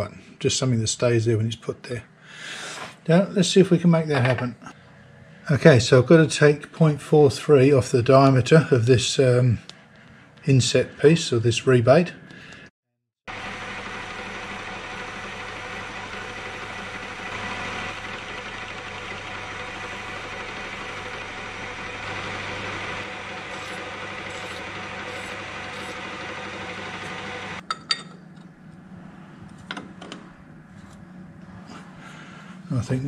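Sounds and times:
metal lathe humming: 13.3s - 27.6s.

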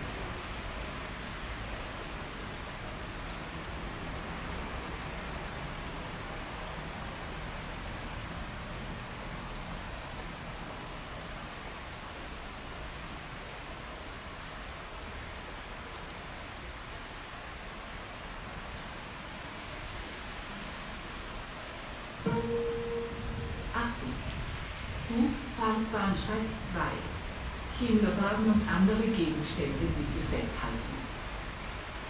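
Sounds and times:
steady background hiss: 17.0s - 32.0s
announcement chime: 22.2s - 24.4s.

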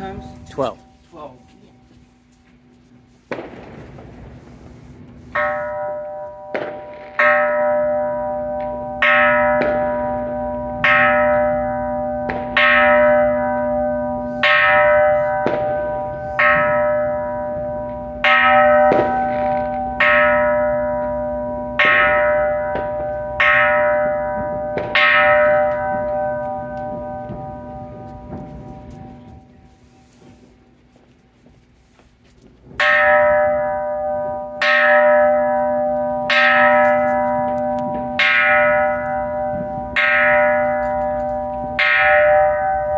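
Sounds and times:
low hum: 0.0s - 32.7s
temple bell struck with mallet: 5.4s - 29.6s, 32.8s - 42.9s.

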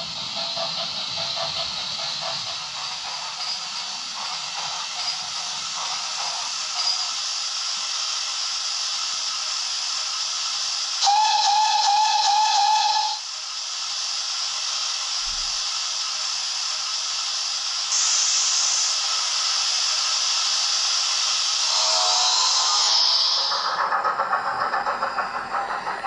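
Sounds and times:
steam hiss: 0.0s - 26.0s
steam locomotive whistle: 11.0s - 13.2s.

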